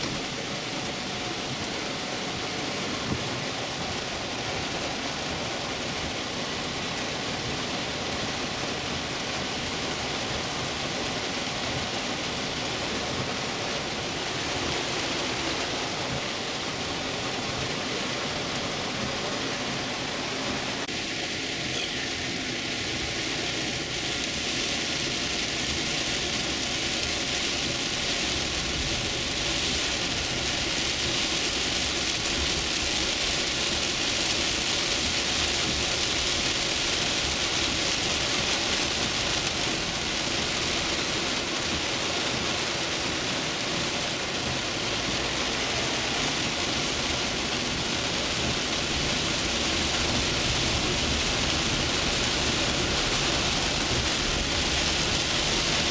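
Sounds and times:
heavy rain on car roof: 0:00.0 - 0:55.9.

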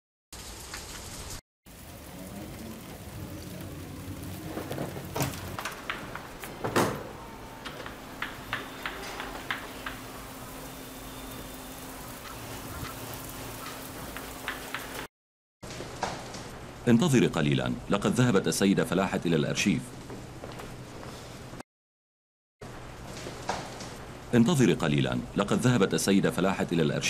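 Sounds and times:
room hiss: 0:07.0 - 0:15.1.

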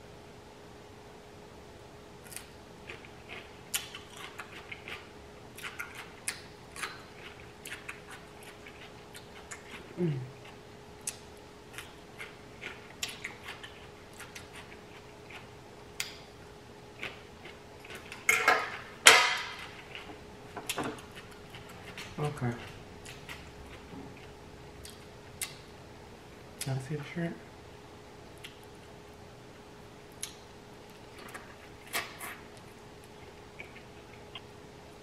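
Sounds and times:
wet chewing and crunching: 0:02.2 - 0:25.7, 0:30.1 - 0:34.6.

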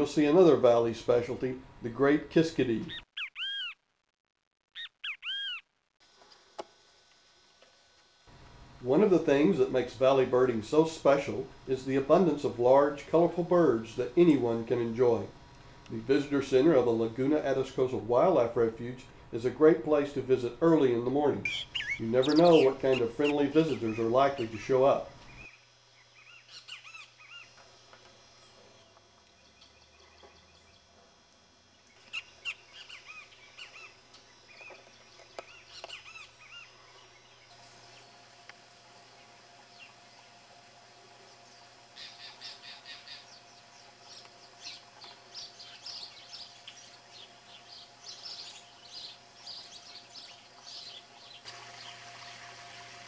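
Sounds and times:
wild birds chirping: 0:02.8 - 0:03.8, 0:04.8 - 0:05.7, 0:13.7 - 0:52.5.

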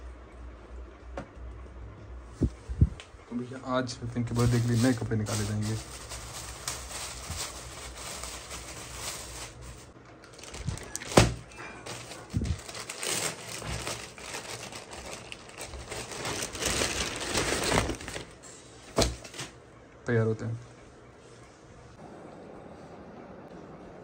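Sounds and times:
plastic bags crinkling: 0:04.2 - 0:18.4.

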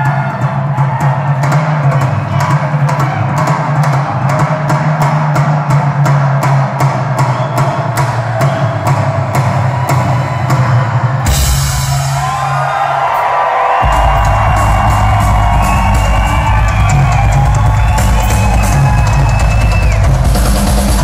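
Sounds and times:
rock drum kit playing: 0:00.0 - 0:21.0
audience whooping and whistling: 0:07.2 - 0:20.6.

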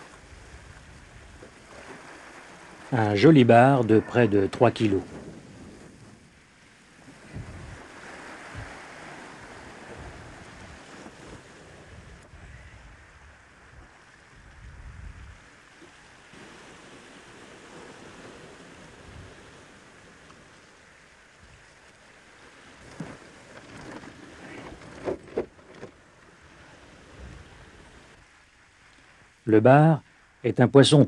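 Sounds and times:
wind on microphone: 0:00.0 - 0:20.7, 0:22.6 - 0:28.4
surf washing on rocks: 0:00.0 - 0:31.0
short knocks and rustles: 0:22.8 - 0:26.0.

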